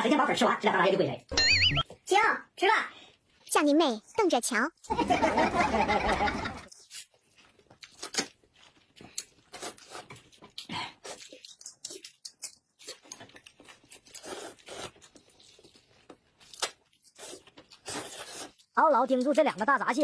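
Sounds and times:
people slurping noodles: 14.1 - 15.0, 17.2 - 18.7.

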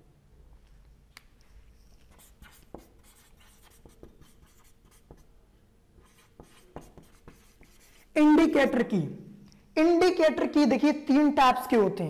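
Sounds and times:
marker pen writing on whiteboard: 1.5 - 8.5.

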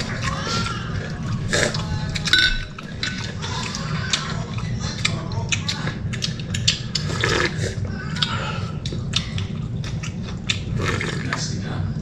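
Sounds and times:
steady low hum: 0.0 - 12.0
broth slurping from a spoon: 6.2 - 7.9.

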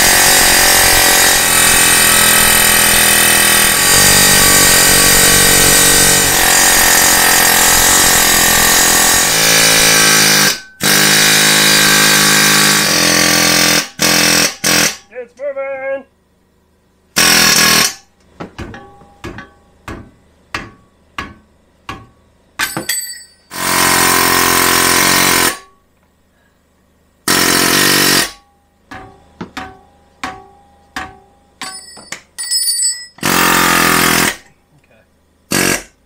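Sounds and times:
pneumatic air hammer hammering: 0.0 - 15.1, 17.2 - 25.8, 27.2 - 32.3, 33.0 - 34.5, 35.5 - 36.0
metallic taps and rings: 18.6 - 19.7, 21.9 - 23.5, 28.9 - 33.2.

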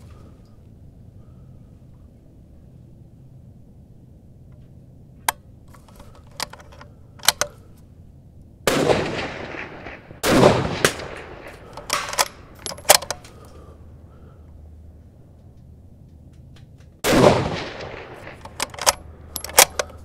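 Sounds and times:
sharp clicks: 5.2 - 7.8, 10.8 - 13.6, 15.3 - 20.0
rifle shots: 8.7 - 13.4, 17.0 - 20.0.

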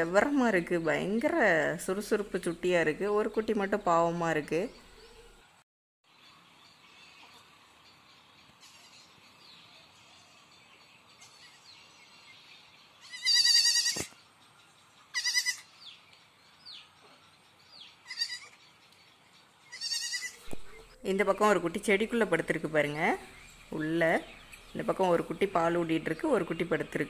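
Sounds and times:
goat bleating: 13.0 - 14.1, 15.1 - 15.7, 18.0 - 18.6, 19.7 - 20.5.

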